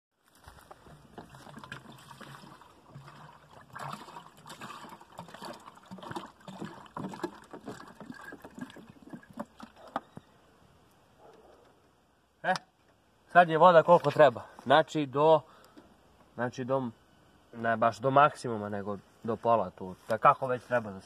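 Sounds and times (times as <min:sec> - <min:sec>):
water pouring and gurgling: 0:00.4 - 0:10.0.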